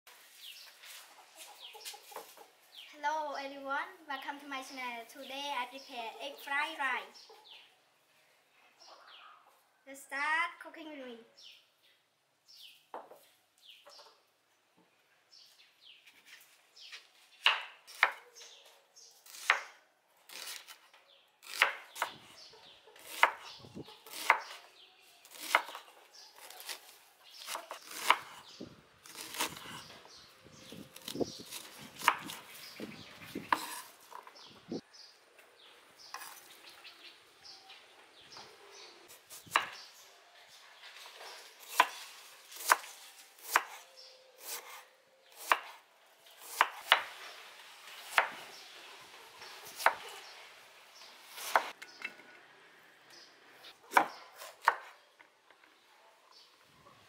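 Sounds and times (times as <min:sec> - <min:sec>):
knife chopping on wooden board: 0:23.0 - 0:24.6, 0:25.3 - 0:25.8, 0:31.0 - 0:32.4, 0:33.4 - 0:34.2, 0:42.6 - 0:43.8, 0:45.4 - 0:45.8, 0:46.4 - 0:47.1.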